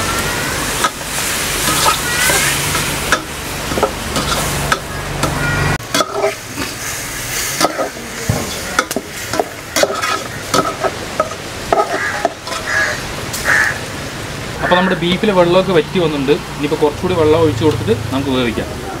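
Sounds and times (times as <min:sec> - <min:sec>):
meat sizzling in a pot: 0:00.0 - 0:15.8
metal spatula scraping pot: 0:00.8 - 0:06.9, 0:07.6 - 0:08.0, 0:08.8 - 0:12.7.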